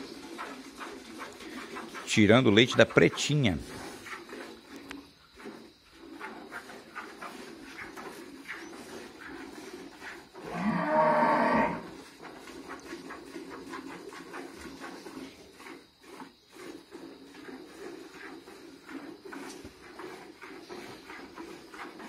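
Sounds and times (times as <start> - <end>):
cow mooing: 10.4 - 11.9.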